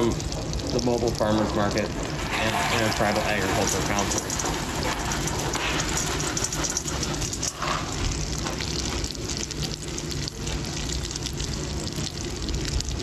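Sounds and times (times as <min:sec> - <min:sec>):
corn crackling and sizzling in fat: 0:00.0 - 0:13.0
corn kernels rattling onto metal: 0:02.1 - 0:07.8.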